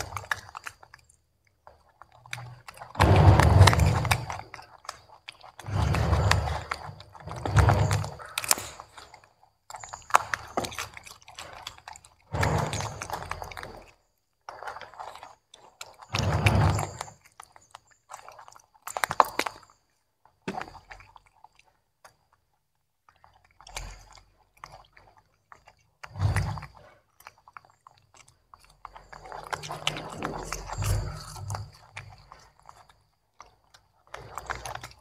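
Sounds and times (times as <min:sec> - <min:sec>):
monkeys crunching broccoli: 0:00.0 - 0:35.0.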